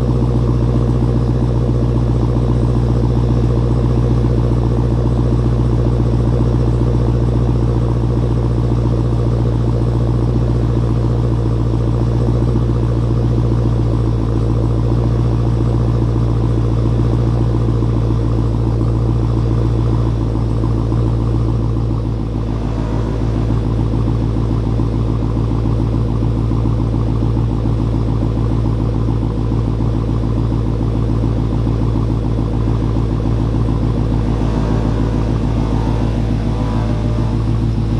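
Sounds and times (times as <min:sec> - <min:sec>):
car engine idling: 0:00.0 - 0:37.9.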